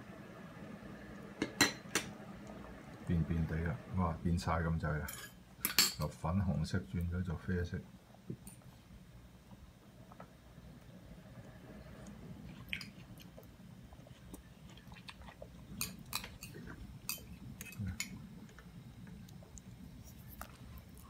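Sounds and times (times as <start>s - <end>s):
broth simmering: 0.0s - 21.0s.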